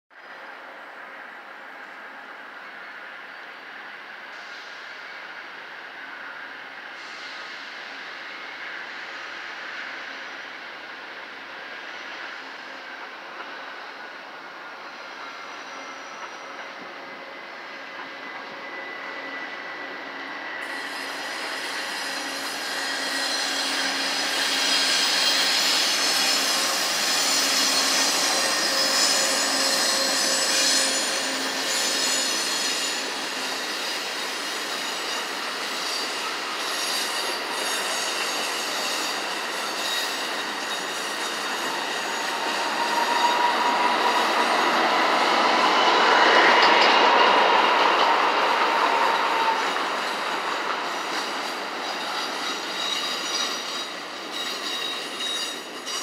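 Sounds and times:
steel wheels squealing on rails: 0:00.2 - 0:56.0
diesel locomotives passing: 0:00.3 - 0:56.0
train cars rolling past: 0:20.6 - 0:56.0.

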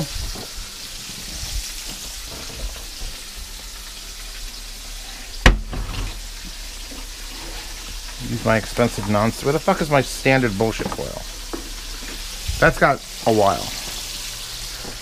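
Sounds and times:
chicken frying in hot oil: 0:00.0 - 0:15.0.

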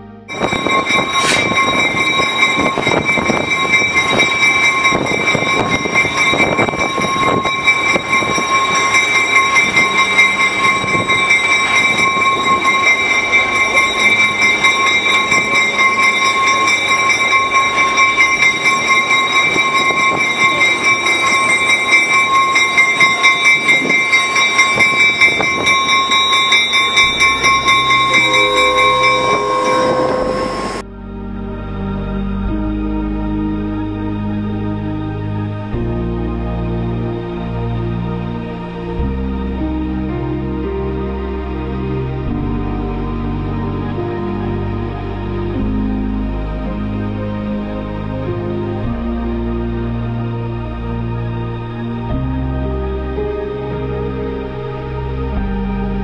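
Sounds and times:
rumble and clatter of rolling cars: 0:00.2 - 0:28.2
train wheels squealing on rails: 0:00.3 - 0:30.8.

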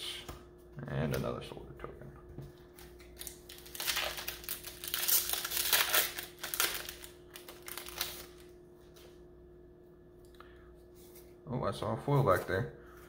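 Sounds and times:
plastic wrapper crinkling: 0:02.6 - 0:08.5.

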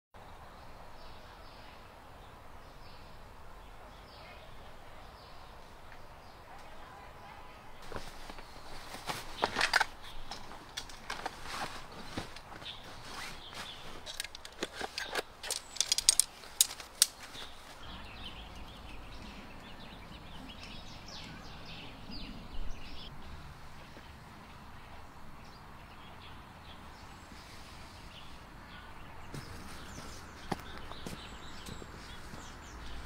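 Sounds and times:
gear clicking and rustling: 0:07.8 - 0:17.8.

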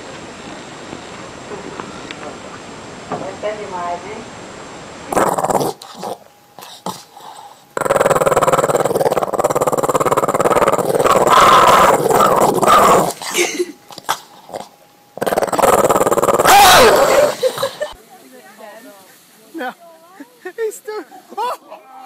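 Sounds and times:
dog growling: 0:05.1 - 0:18.0.

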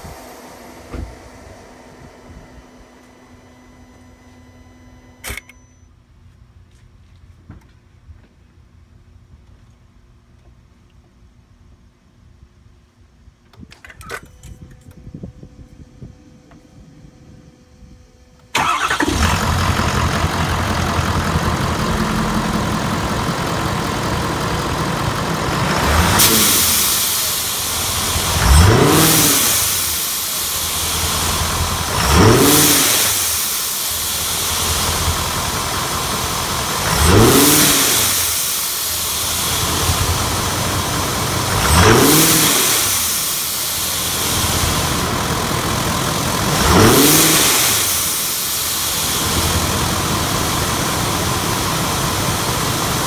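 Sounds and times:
diesel truck engine revving: 0:18.6 - 0:53.0.

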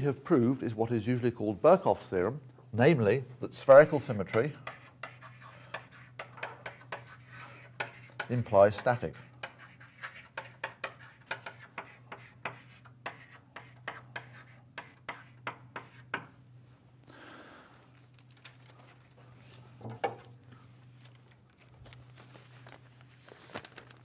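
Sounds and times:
pen scratching strokes: 0:03.8 - 0:16.2.

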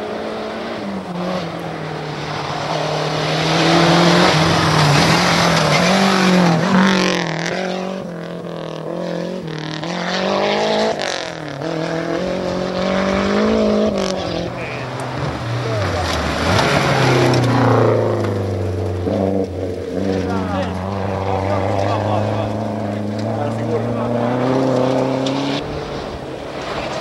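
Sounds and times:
rally car engines revving: 0:00.0 - 0:27.0
tyres on gravel rushing: 0:02.2 - 0:07.2, 0:14.3 - 0:27.0.

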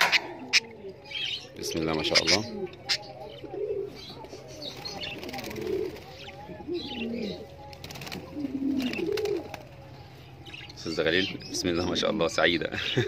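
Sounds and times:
pigeons cooing: 0:00.0 - 0:12.2
budgerigar chirps and chatter: 0:00.0 - 0:13.0.

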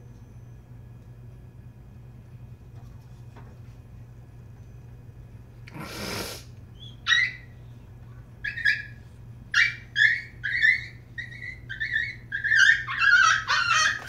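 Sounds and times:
puppy yipping and whining: 0:06.8 - 0:07.6, 0:08.4 - 0:14.0.

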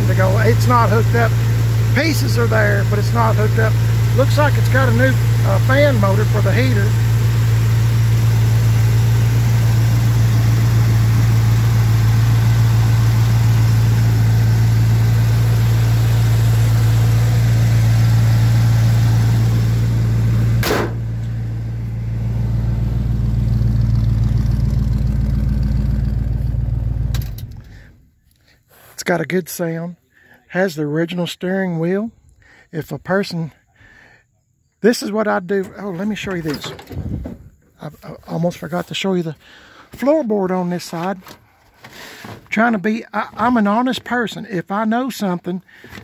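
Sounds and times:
car engine idling: 0:00.0 - 0:28.1.

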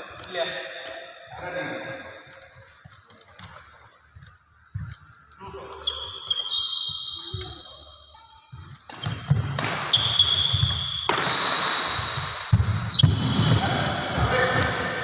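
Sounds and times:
racket striking shuttlecock: 0:08.9 - 0:13.3.

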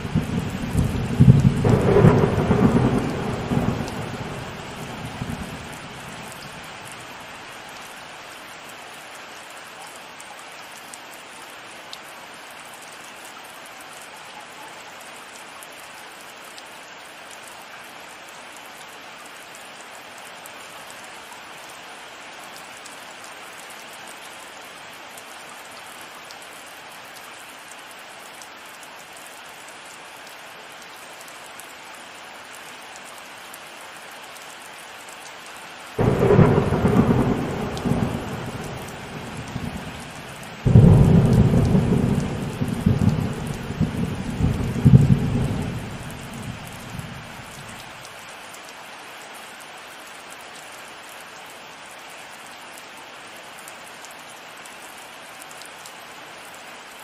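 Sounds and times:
thunderclap rumbling: 0:00.0 - 0:05.7, 0:36.0 - 0:47.6
heavy rain falling: 0:00.0 - 0:57.0.

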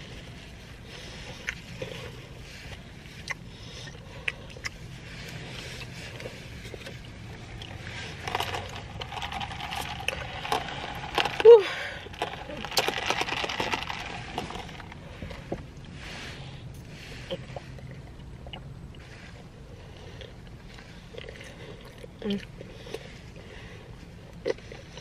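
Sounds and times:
person chewing sandwich: 0:00.0 - 0:25.0
ice and straw rattling in cup: 0:07.8 - 0:15.0.

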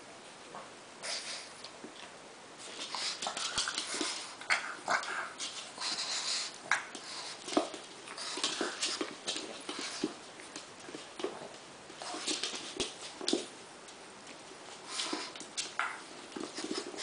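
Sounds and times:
dogs making breathy noises: 0:02.6 - 0:10.2
dogs scuffling: 0:02.6 - 0:17.0.

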